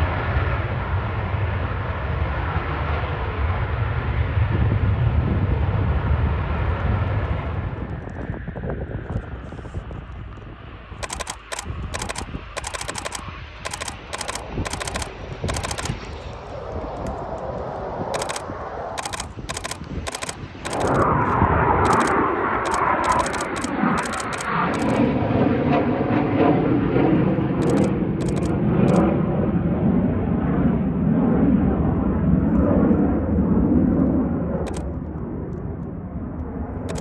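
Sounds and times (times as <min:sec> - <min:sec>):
jet noise: 0:04.0 - 0:37.0
camera shutter clicking: 0:11.0 - 0:16.0, 0:18.2 - 0:25.1, 0:27.6 - 0:29.0, 0:34.7 - 0:34.9.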